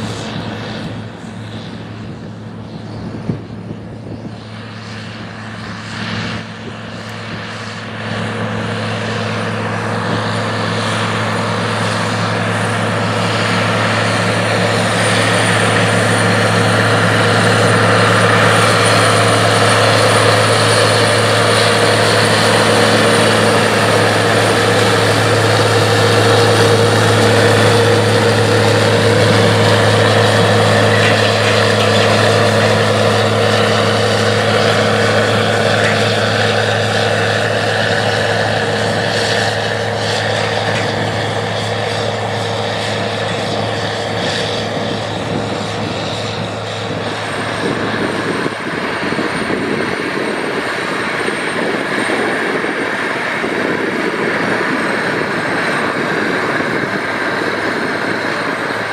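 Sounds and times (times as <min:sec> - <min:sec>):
tractor diesel engine under load: 0:00.0 - 0:58.9.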